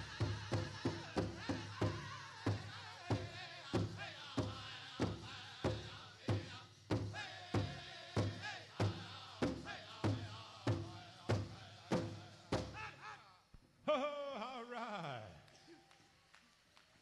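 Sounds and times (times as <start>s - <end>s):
big drum steady beat: 0.0s - 12.8s
high-pitched group singing: 0.0s - 13.2s.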